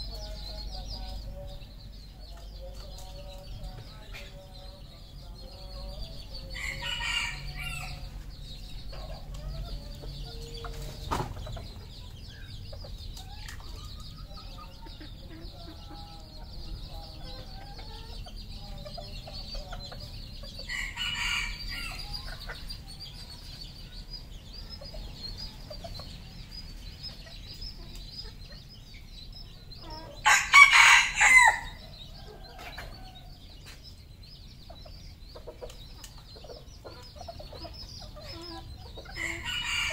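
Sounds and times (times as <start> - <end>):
rooster crowing: 6.6 - 8.0, 20.7 - 22.1, 30.2 - 31.8, 39.2 - 39.9.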